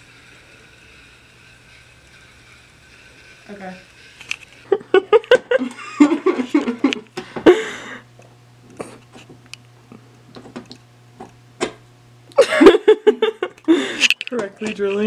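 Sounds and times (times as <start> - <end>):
low steady hum: 0.0 - 15.0
screwdriver clicks and scrapes: 4.1 - 4.6
person laughing: 4.6 - 8.0, 12.4 - 14.0.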